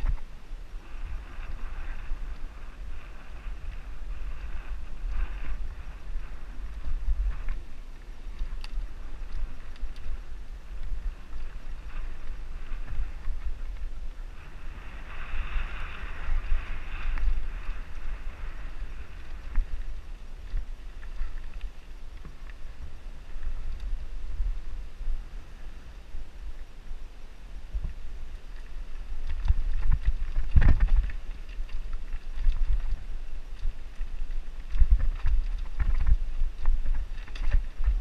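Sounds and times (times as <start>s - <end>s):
wind rumble on microphone: 0.0s - 38.0s.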